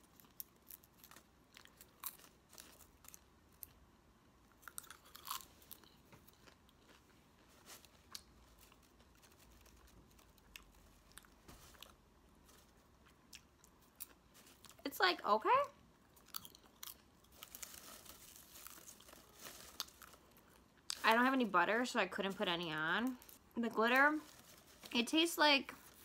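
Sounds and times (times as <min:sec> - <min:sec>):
person chewing popcorn: 0:00.0 - 0:14.8, 0:15.8 - 0:21.0.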